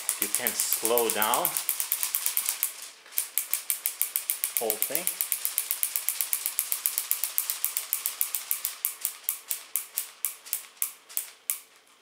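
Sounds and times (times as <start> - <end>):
toy crank mechanism ticking: 0.0 - 11.7.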